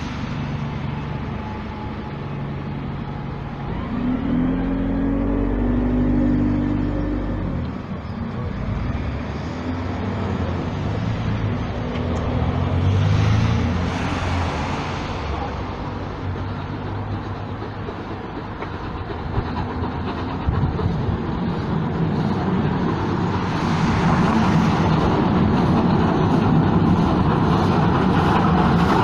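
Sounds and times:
vehicle engine passing by: 0:03.7 - 0:07.8, 0:08.5 - 0:16.2
wind rumble on microphone: 0:19.3 - 0:29.0.

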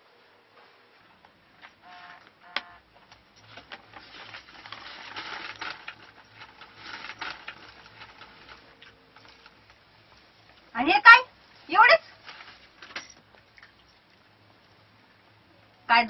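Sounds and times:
paper crinkling and rustling: 0:03.0 - 0:09.8, 0:12.0 - 0:13.4.

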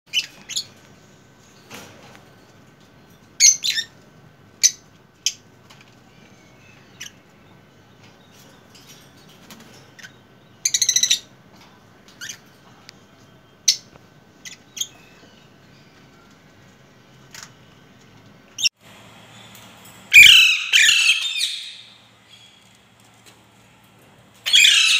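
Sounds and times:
parakeets giving shrill calls: 0:20.1 - 0:22.5, 0:24.4 - 0:24.9.

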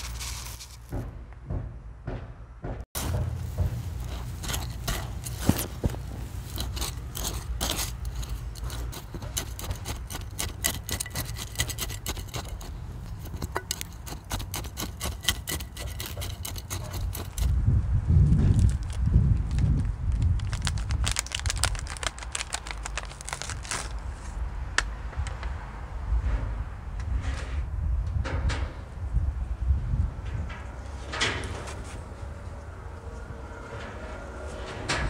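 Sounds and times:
metal scoop scraping gritty soil: 0:00.0 - 0:01.0, 0:03.0 - 0:17.6.

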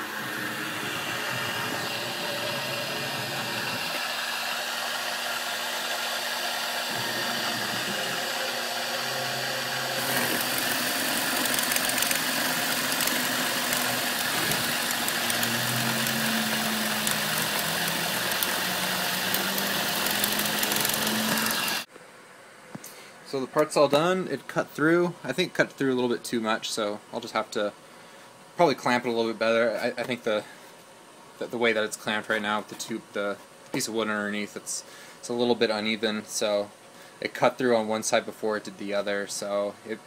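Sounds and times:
milling machine whirring: 0:00.0 - 0:21.9.

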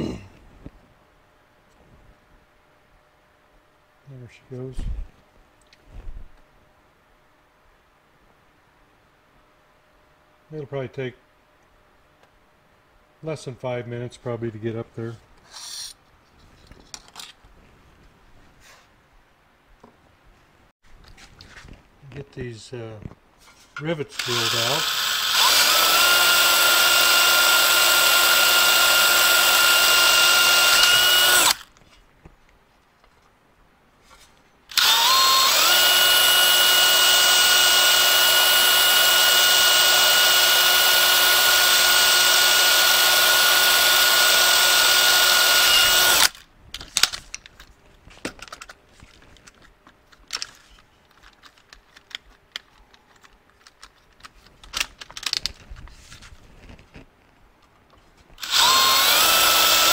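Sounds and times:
cordless drill whining: 0:24.1 - 0:31.7, 0:34.7 - 0:46.4, 0:58.4 - 0:59.9.

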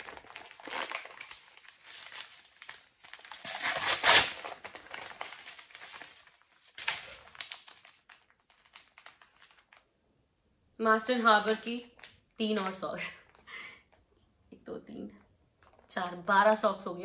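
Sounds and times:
packaging crinkling and rustling: 0:00.0 - 0:09.9, 0:11.3 - 0:13.5, 0:15.6 - 0:16.2.

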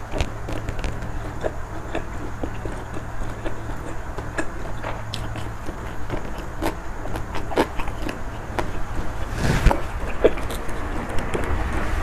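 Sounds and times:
chewing with wet mouth clicks: 0:00.0 - 0:11.8
steady low hum: 0:00.0 - 0:12.0
rustling noise: 0:08.6 - 0:10.1.

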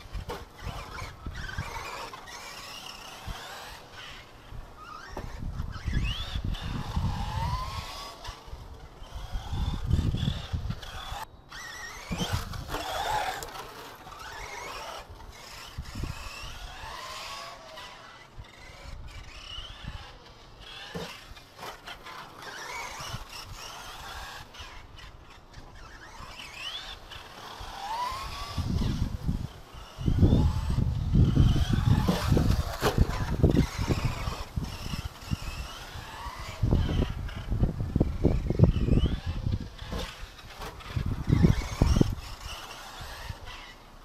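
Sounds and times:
electric motor whining: 0:00.0 - 0:44.0
tyres squealing on asphalt: 0:00.0 - 0:44.0.

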